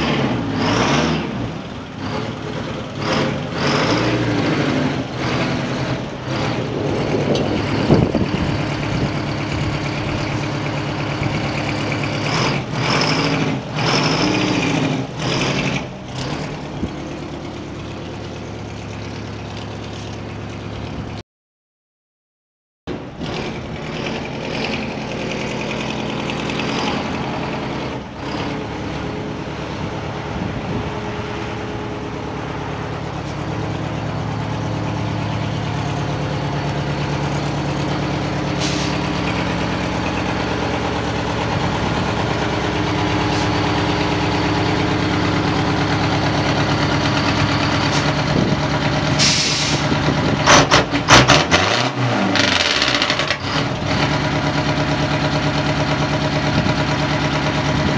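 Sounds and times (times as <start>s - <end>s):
diesel truck engine running: 0.0s - 21.2s, 22.9s - 57.9s
air brake hisses: 38.6s - 39.0s, 49.2s - 49.9s.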